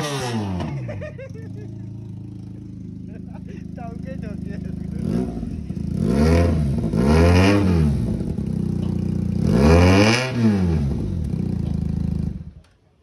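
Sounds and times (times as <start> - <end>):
motorcycle engine idling and revving: 0.0 - 13.0.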